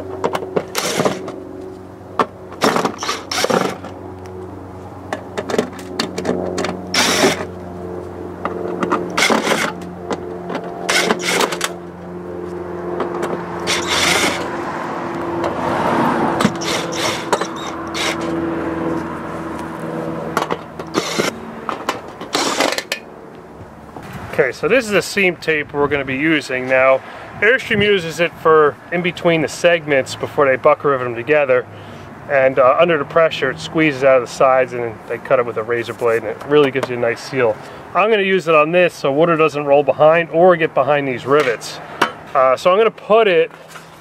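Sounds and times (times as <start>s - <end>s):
steady low hum: 0.0s - 27.5s
cordless drill backing out screws: 0.3s - 1.4s, 2.6s - 3.9s, 5.5s - 7.5s, 10.6s - 11.8s, 13.2s - 14.5s, 16.4s - 18.3s, 20.4s - 21.4s, 22.2s - 23.0s.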